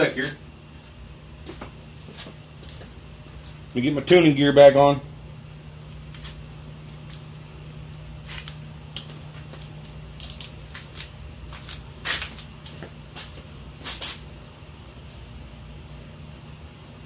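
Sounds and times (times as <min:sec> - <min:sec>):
rustling and scuffing gear: 0:00.2 - 0:03.6, 0:10.3 - 0:14.2.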